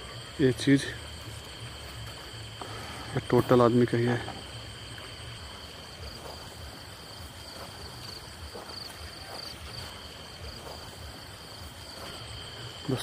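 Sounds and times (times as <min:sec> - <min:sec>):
crickets chirring: 0:00.0 - 0:13.0.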